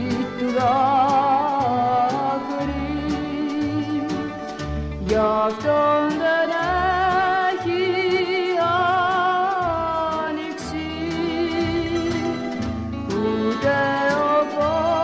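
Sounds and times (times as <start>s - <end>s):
light percussion: 0.0s - 15.0s
low bass notes: 0.0s - 15.0s.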